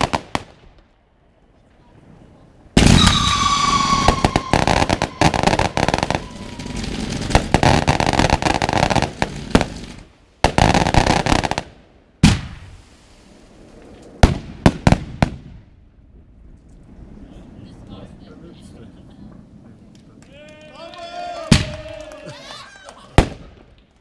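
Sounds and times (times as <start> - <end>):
firework launches bangs and crackling: 0.0 - 1.0, 1.6 - 20.4, 21.4 - 22.1, 23.1 - 24.0
firework whistle: 2.8 - 7.8.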